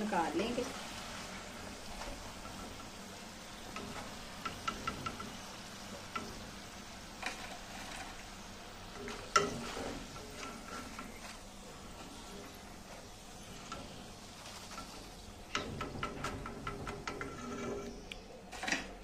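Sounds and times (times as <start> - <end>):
hot oil sizzling: 0.0 - 19.0.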